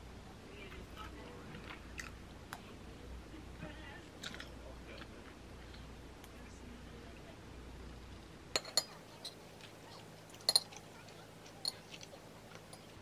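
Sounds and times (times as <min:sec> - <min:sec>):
cutlery clinking on ceramic plate: 0:08.6 - 0:09.4, 0:10.3 - 0:13.0.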